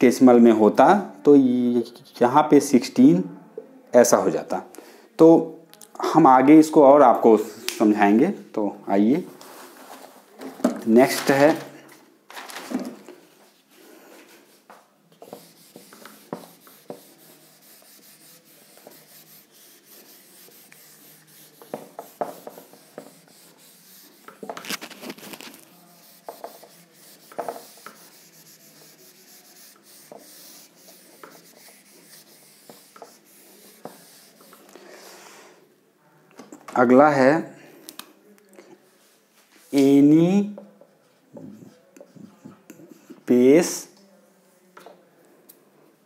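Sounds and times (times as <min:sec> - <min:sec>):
duster rubbing on whiteboard: 0:14.2 - 0:34.8.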